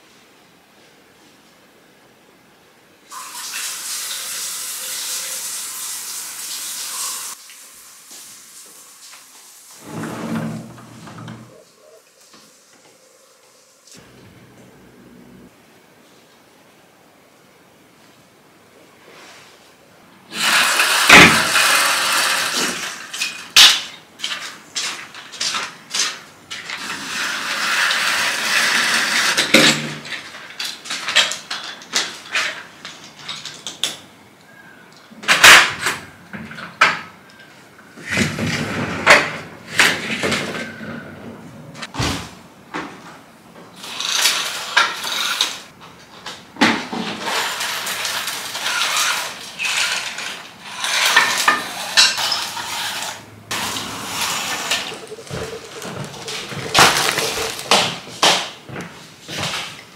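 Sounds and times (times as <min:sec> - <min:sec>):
rustling and scraping: 0:09.7 - 0:13.0, 0:18.9 - 0:19.8, 0:43.8 - 0:59.9.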